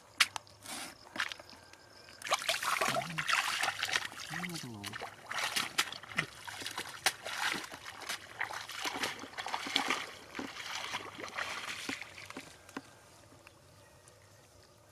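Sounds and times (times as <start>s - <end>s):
feet splashing in muddy water: 2.2s - 12.7s.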